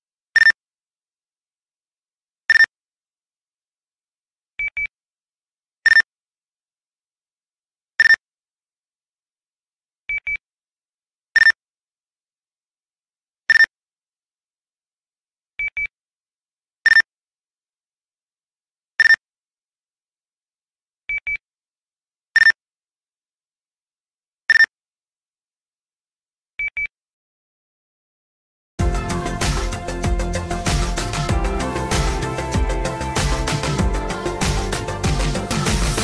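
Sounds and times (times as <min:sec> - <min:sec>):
short phone beeps: 0:26.6 - 0:27.0.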